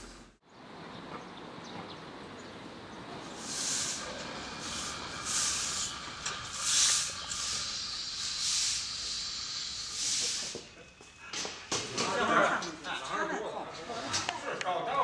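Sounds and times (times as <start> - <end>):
twig broom sweeping stone: 3.3 - 10.6.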